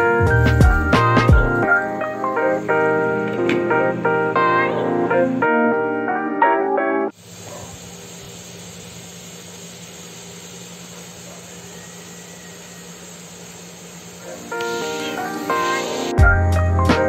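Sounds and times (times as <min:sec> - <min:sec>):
steady hiss: 0:00.0 - 0:05.8, 0:07.1 - 0:17.0.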